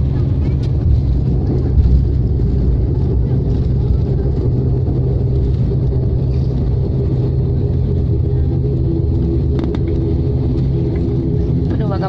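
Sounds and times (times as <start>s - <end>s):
jet engines and wheels rumbling: 0.0s - 12.0s.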